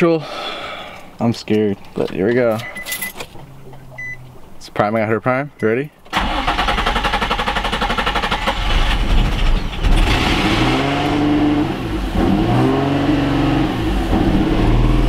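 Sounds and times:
car starter cranking: 0:06.0 - 0:10.7
car engine revving: 0:06.2 - 0:15.0.

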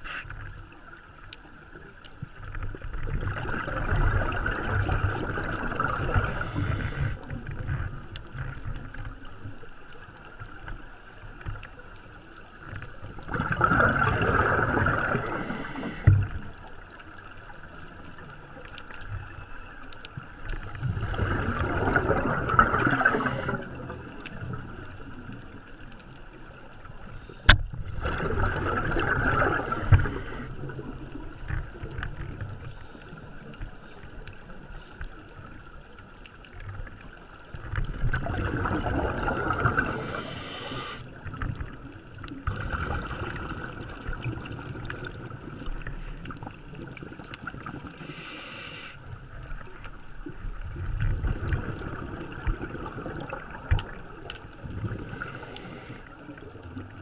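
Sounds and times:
regulator inhale hiss: 0:00.0 - 0:00.4, 0:06.1 - 0:07.3, 0:15.0 - 0:16.4, 0:22.8 - 0:23.8, 0:29.5 - 0:30.6, 0:39.8 - 0:41.1, 0:48.0 - 0:49.1, 0:55.0 - 0:56.2
exhaled bubbles rushing: 0:02.7 - 0:07.6, 0:13.1 - 0:16.5, 0:20.6 - 0:24.8, 0:27.8 - 0:31.8, 0:37.8 - 0:41.8, 0:42.4 - 0:48.0, 0:50.6 - 0:55.9.

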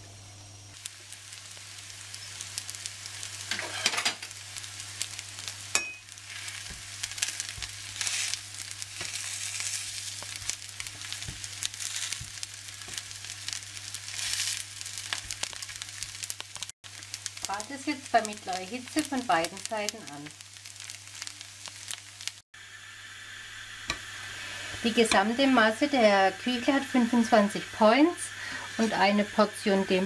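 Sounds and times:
patties sizzling in oil: 0:00.1 - 0:30.0
spatula scraping pan: 0:03.4 - 0:04.2, 0:06.1 - 0:15.6.

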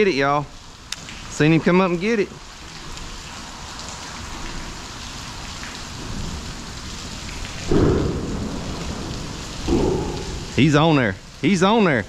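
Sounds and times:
rushing outdoor noise over water: 0:00.0 - 0:12.0
loud low rumble: 0:07.7 - 0:10.9.

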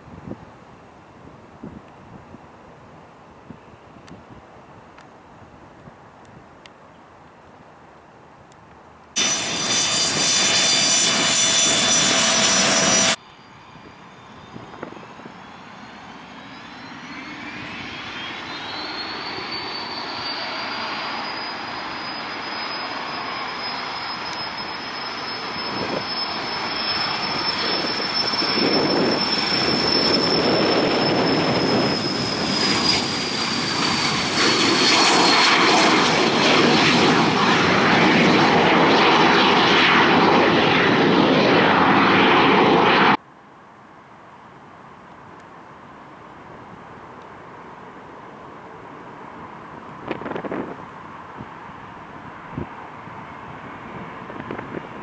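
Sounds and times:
jet engine whine: 0:09.1 - 0:43.3, 0:44.0 - 0:55.0
jet roar: 0:09.2 - 0:43.2, 0:46.9 - 0:55.0.

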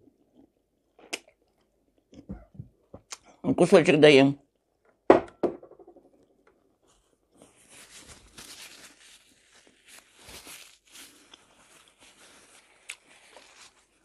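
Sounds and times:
faint chewing of food: 0:10.8 - 0:14.0.

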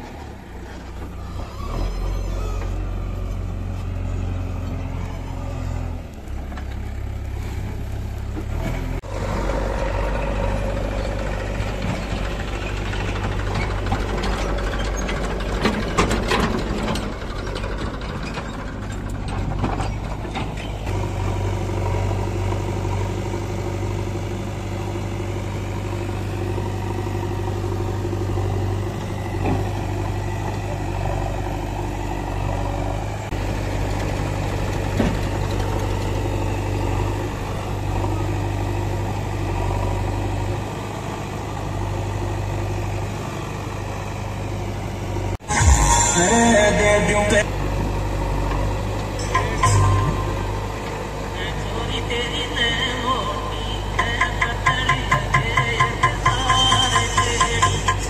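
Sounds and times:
diesel engines rumbling: 0:00.0 - 0:58.0
rattling and clatter: 0:11.0 - 0:20.9.

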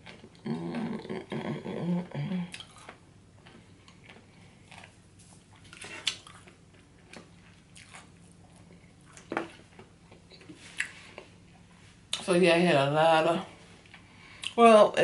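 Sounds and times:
close-up chewing: 0:02.5 - 0:11.3.

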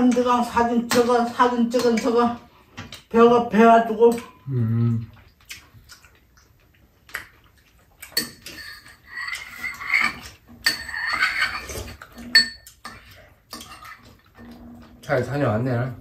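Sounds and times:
eating sounds: 0:04.2 - 0:10.6, 0:11.6 - 0:15.4
spoons clinking against bowls: 0:08.1 - 0:14.0.

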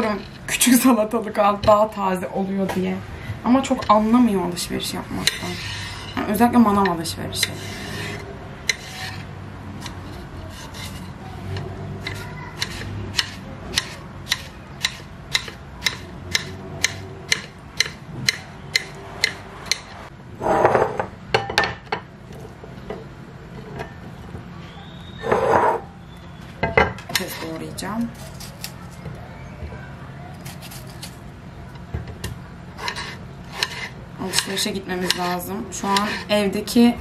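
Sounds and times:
short scraping sound: 0:25.2 - 0:25.9.

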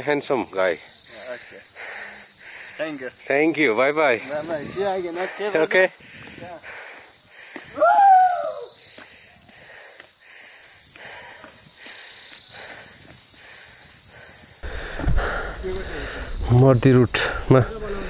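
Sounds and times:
insects buzzing: 0:00.0 - 0:18.0
footsteps on a trail: 0:06.0 - 0:07.8, 0:08.8 - 0:16.5.

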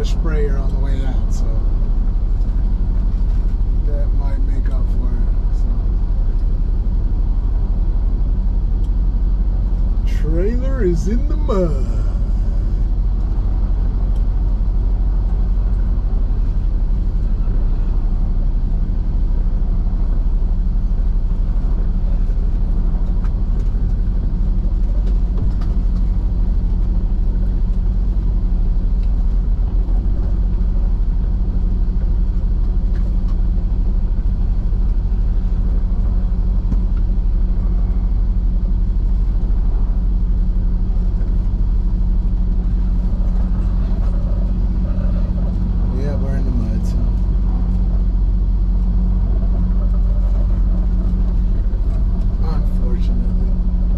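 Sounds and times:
diesel truck engine humming: 0:00.0 - 0:53.9.

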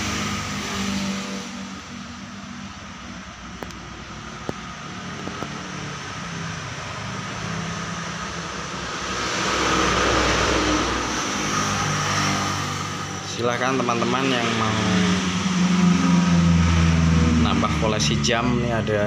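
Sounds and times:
road traffic rumble: 0:00.0 - 0:19.0
vehicle passing: 0:00.0 - 0:19.0.

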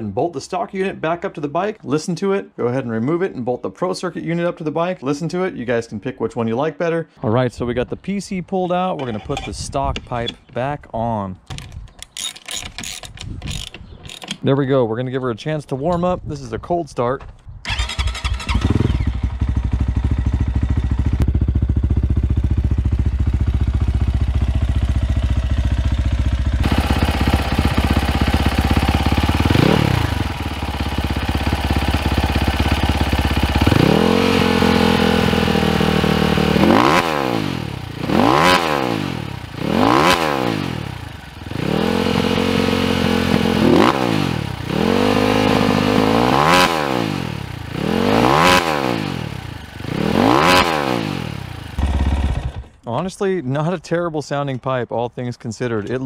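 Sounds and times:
dirt bike engine revving: 0:17.7 - 0:52.8.

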